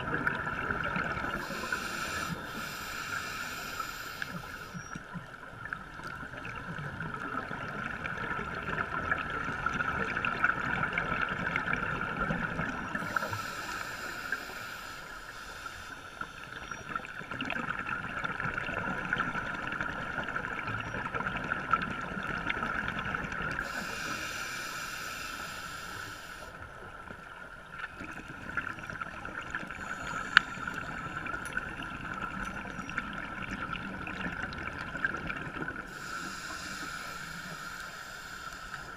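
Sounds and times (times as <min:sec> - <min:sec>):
scuba regulator bubbles: 0:00.0 - 0:26.4
underwater hiss with crackle: 0:00.5 - 0:06.8, 0:08.6 - 0:20.0, 0:22.6 - 0:33.6, 0:34.9 - 0:38.9.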